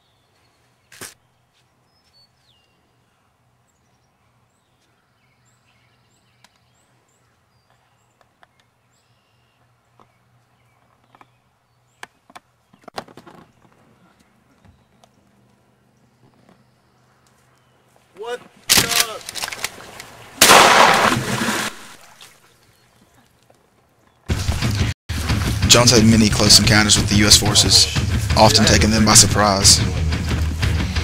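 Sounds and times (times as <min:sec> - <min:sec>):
small birds chirping: 0:00.0 - 0:18.2, 0:22.4 - 0:24.3.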